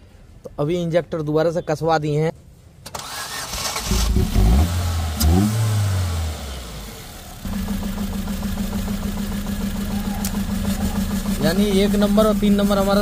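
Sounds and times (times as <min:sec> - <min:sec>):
car engine starting and idling: 0:02.8 - 0:13.0.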